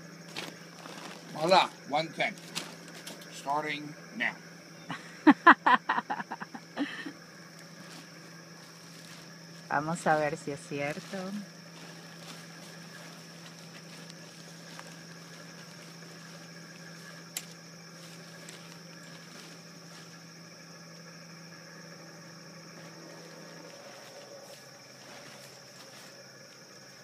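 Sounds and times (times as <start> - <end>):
insects droning: 0.0 - 27.0
low steady hum: 0.0 - 27.0
tent fabric rustling: 0.3 - 3.2, 11.0 - 20.2, 22.8 - 26.6.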